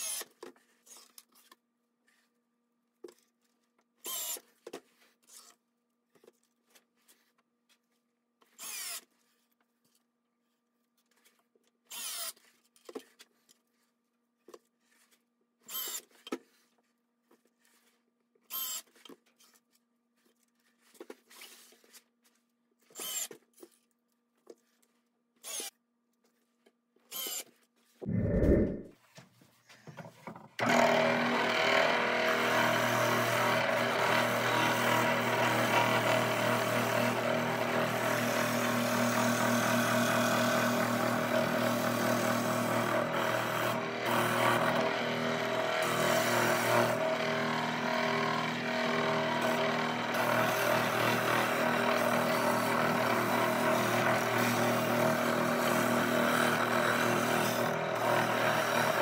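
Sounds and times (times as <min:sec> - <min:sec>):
cordless drill driving screws: 0:04.1 - 0:04.4, 0:08.6 - 0:09.1, 0:11.9 - 0:12.4, 0:15.7 - 0:16.1, 0:18.5 - 0:18.9, 0:22.9 - 0:23.4, 0:25.4 - 0:25.7, 0:27.1 - 0:27.5.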